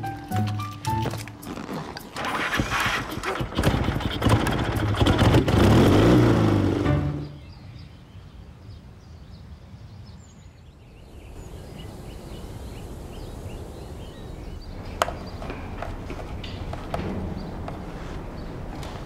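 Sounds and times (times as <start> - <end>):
small birds chirping: 7.1 - 19.0.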